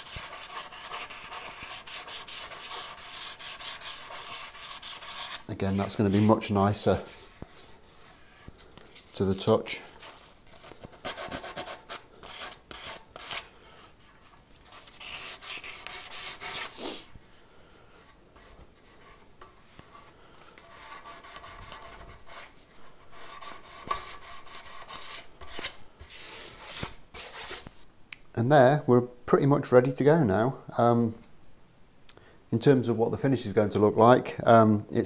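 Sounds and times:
sandpaper scratching on wood: 0.0 - 8.4, 14.8 - 17.0.

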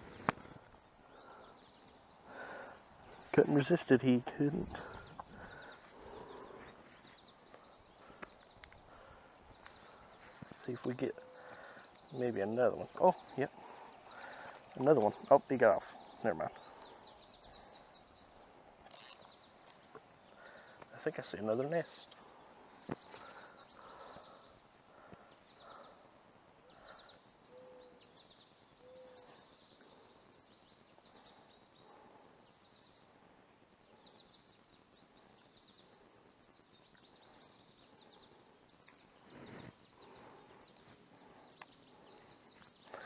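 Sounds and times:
high chirping trills: 18.8 - 19.5.

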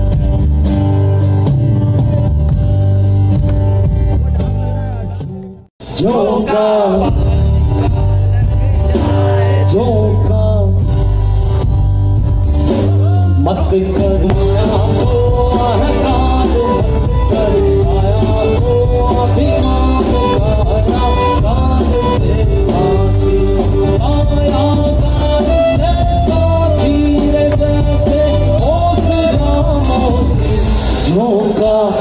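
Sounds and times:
drum kit: 0.0 - 32.0
electric bass: 0.0 - 32.0
person singing: 13.0 - 32.0.

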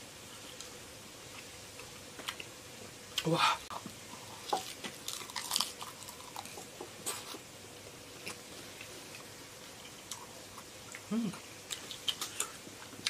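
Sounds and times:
person humming: 11.0 - 11.4
close chewing: 11.7 - 13.0.

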